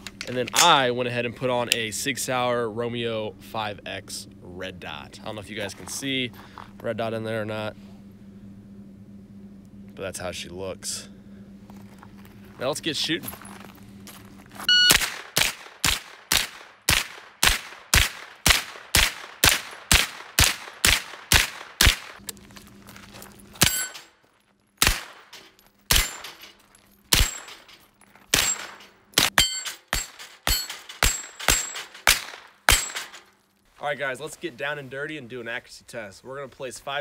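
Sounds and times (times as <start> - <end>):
carbine gunshots: 14.9 - 22.2, 24.8 - 26.4, 27.1 - 27.6, 28.3 - 33.2.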